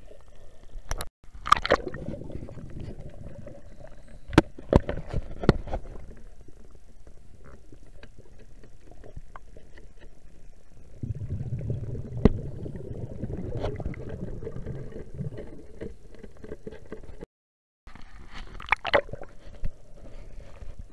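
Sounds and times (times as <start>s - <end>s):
clicks and crackles: 0.1s - 10.7s
underwater rumble of moving water: 1.8s - 17.2s.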